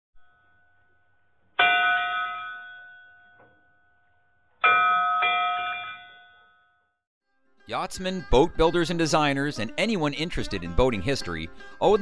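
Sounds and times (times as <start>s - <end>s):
bell chimes: 1.6s - 4.0s, 4.6s - 6.9s.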